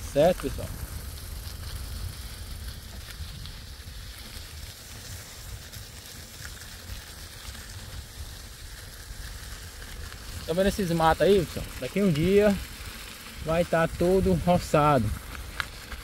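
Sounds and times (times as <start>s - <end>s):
wind buffeting microphone: 0.0s - 4.8s
outdoor hiss: 0.0s - 16.0s
faint ticks: 15.2s - 16.0s.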